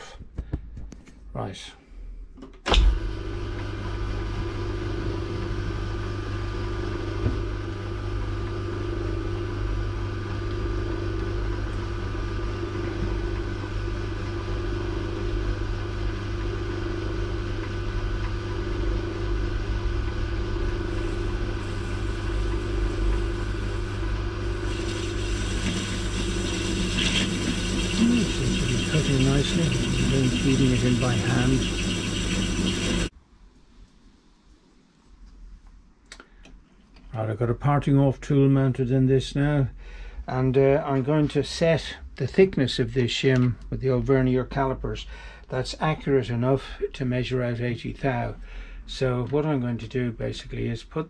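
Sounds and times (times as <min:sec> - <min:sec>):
lathe motor and gear hum: 0:02.7 - 0:33.1.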